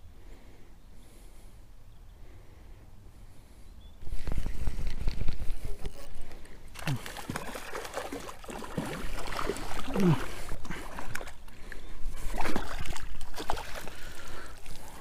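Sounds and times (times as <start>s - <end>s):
fish splashing in water: 6.7s - 15.0s.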